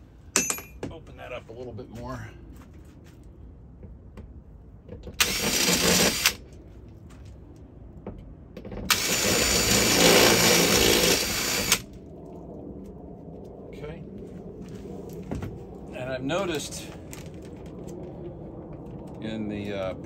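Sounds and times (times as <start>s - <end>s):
cordless drill boring through steel: 5.2s - 6.4s, 8.9s - 11.8s.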